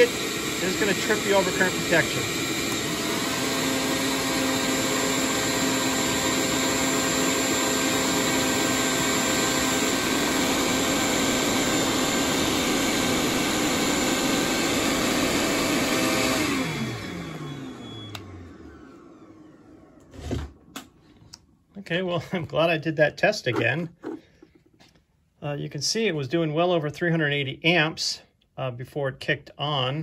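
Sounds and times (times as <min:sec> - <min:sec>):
shop vac and heat gun whirring: 0:00.0 - 0:22.0.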